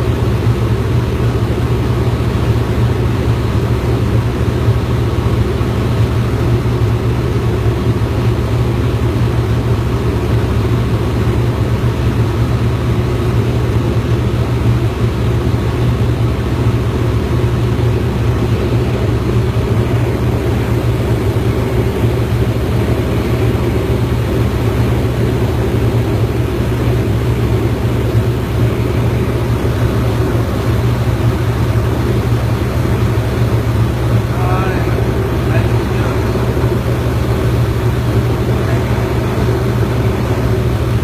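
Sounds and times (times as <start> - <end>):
propeller aircraft engine drone: 0.0 - 41.0.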